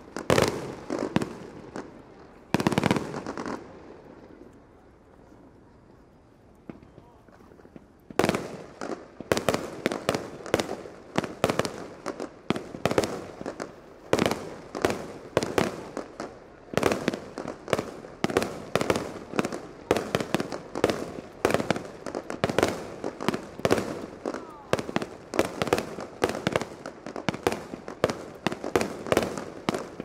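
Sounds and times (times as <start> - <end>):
fireworks bursting: 0.0 - 30.0.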